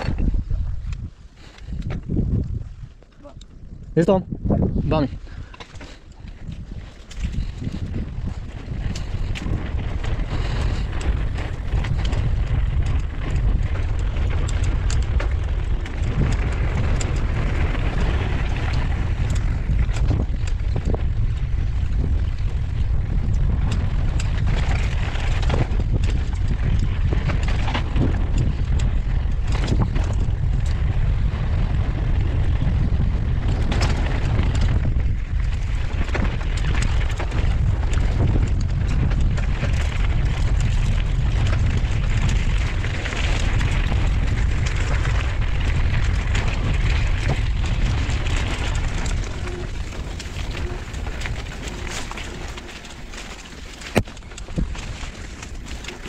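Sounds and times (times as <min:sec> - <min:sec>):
bike rattling and knocking: 0:00.0 - 0:56.0
wind rumbling on microphone: 0:00.0 - 0:56.0
tyres crunching over gravel: 0:35.3 - 0:56.0.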